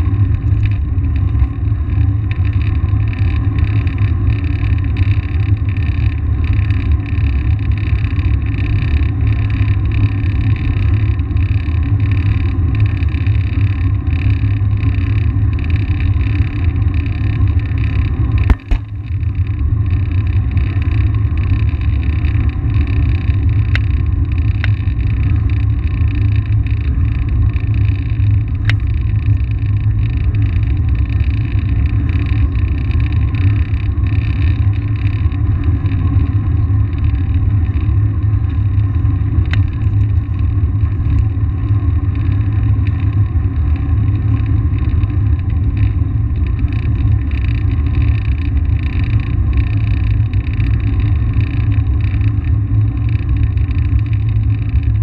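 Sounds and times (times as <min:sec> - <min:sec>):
sharp knock: 0:18.5 - 0:19.0.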